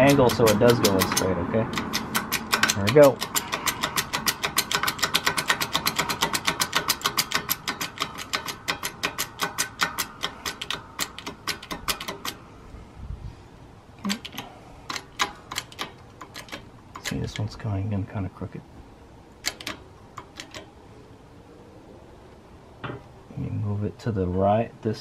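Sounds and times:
hydraulic press pump clicking: 0.0s - 12.4s, 14.1s - 17.5s, 19.4s - 20.7s.

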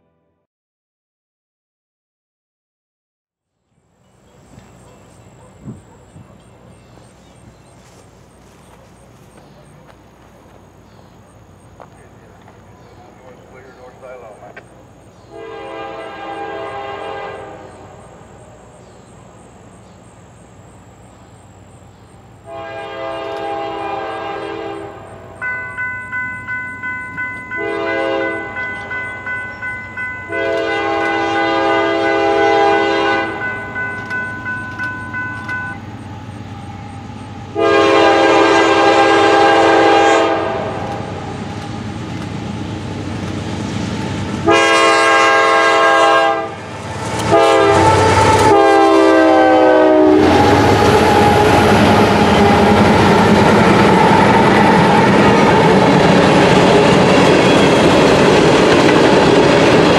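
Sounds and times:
diesel locomotive rumble: 3.9s - 59.9s
locomotive air horn blasts: 15.3s - 18.0s, 22.4s - 25.5s, 27.3s - 29.3s, 30.0s - 34.2s, 36.6s - 41.5s, 44.4s - 53.2s
bell ringing quickly: 25.4s - 30.4s, 33.4s - 35.9s.

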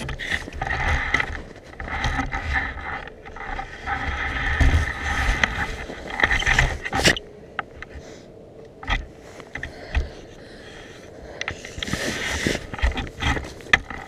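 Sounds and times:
rig scraping and rattling: 0.0s - 7.2s, 11.5s - 14.0s.

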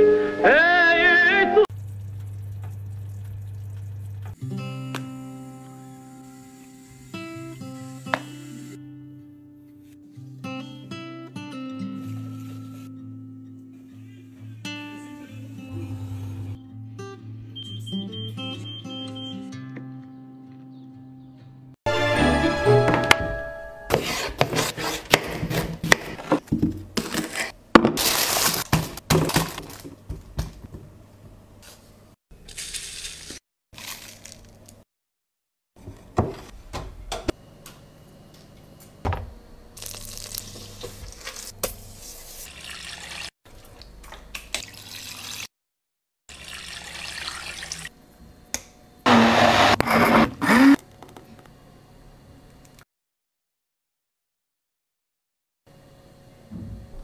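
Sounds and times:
water running and splashing: 42.4s - 45.5s, 46.3s - 47.9s.

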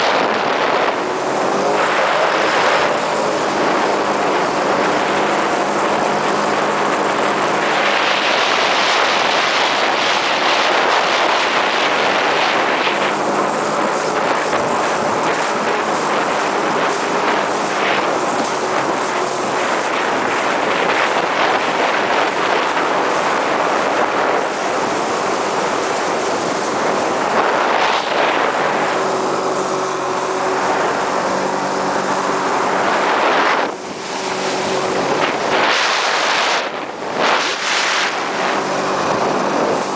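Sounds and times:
rushing water: 0.0s - 39.9s
watercraft engine humming: 0.0s - 39.9s
wind buffeting microphone: 0.0s - 39.9s.

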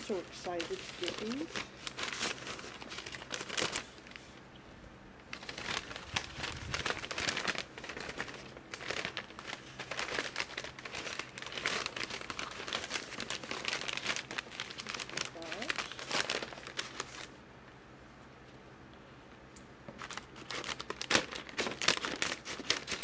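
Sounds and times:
plastic bag crinkling: 0.0s - 4.4s, 5.3s - 17.4s, 19.9s - 23.0s.

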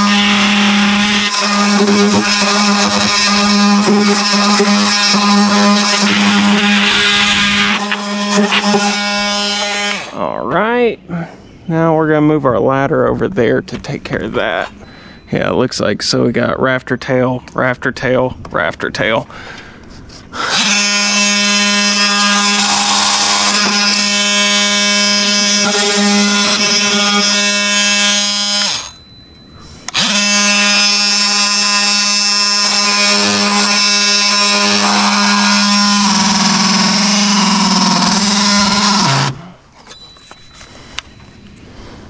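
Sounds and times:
oscillating multi-tool buzzing: 0.0s - 10.2s, 20.4s - 41.6s.

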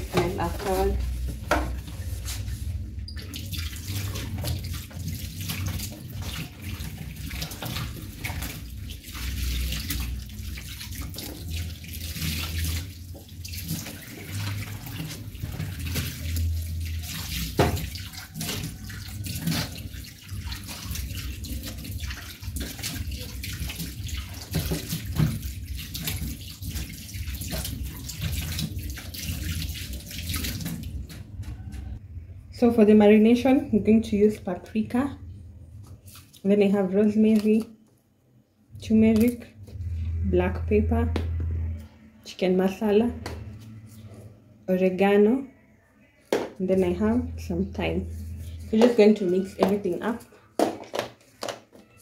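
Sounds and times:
scrubbing sink: 0.0s - 32.0s, 35.6s - 37.6s, 46.6s - 52.0s
tap water splashing into sink: 3.2s - 31.2s.

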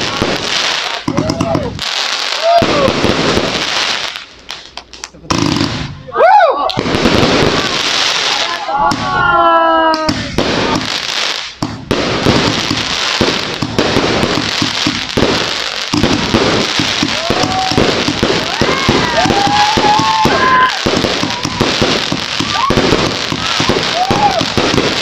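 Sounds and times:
fireworks bangs and crackling: 0.0s - 6.1s, 6.7s - 25.0s.

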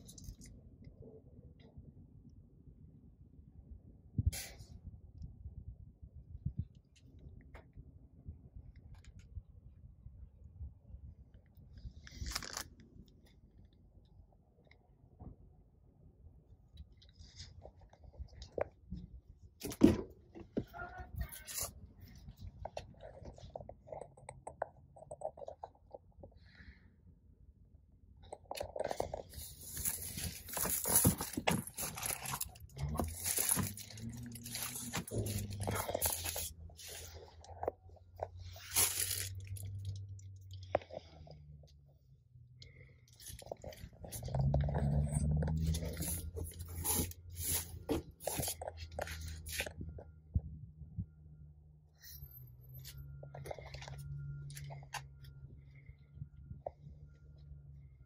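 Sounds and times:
rubber liner crinkling rustles: 28.3s - 40.8s.

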